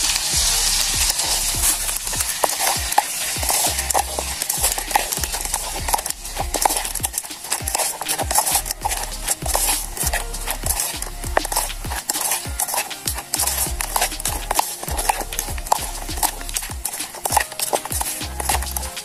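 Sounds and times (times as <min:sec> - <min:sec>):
steady hiss: 0:00.0 - 0:19.0
quick irregular clicks: 0:01.0 - 0:19.0.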